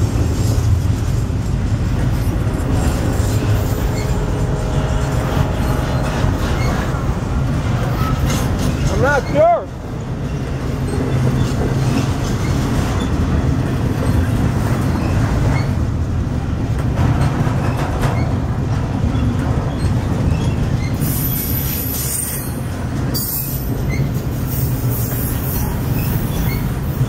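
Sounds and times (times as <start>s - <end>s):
freight train cars rumbling: 0.0s - 27.0s
high-pitched wheel squeal: 3.3s - 7.0s, 19.7s - 27.0s.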